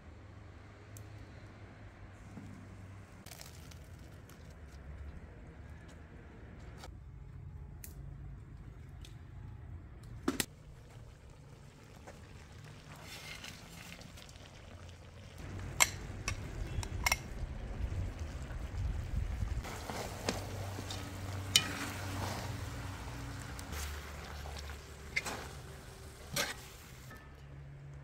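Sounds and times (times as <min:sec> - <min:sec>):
meat sizzling: 0:11.0 - 0:27.1.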